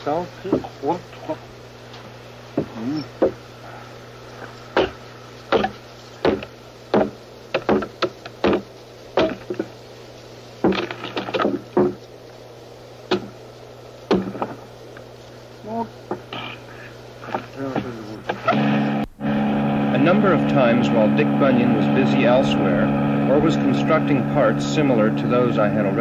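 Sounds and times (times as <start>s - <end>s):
steady low hum: 0.0s - 26.0s
wooden knocks splitting a log: 4.8s - 9.7s, 10.6s - 12.0s, 13.1s - 13.4s.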